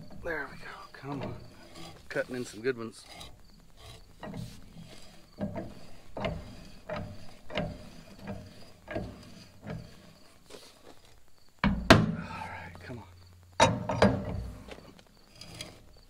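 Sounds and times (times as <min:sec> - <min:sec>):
thread tap clicking and creaking in metal: 0:00.0 - 0:10.4, 0:13.5 - 0:16.0.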